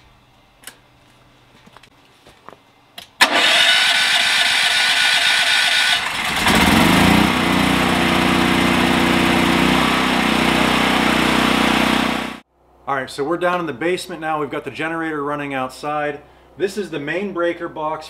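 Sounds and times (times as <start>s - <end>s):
generator engine running: 3.2s - 12.4s
generator starter whirring: 3.2s - 12.4s.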